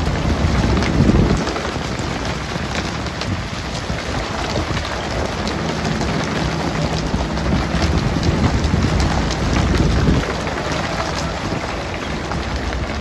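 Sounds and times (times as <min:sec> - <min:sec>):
low rumble: 0:00.0 - 0:13.0
water drops pattering: 0:00.0 - 0:13.0.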